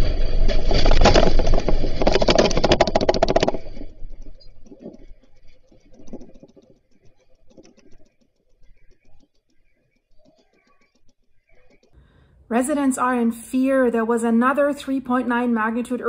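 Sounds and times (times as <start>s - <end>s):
low earthquake rumble: 0.0s - 6.4s
doors and objects rattling: 0.0s - 11.9s.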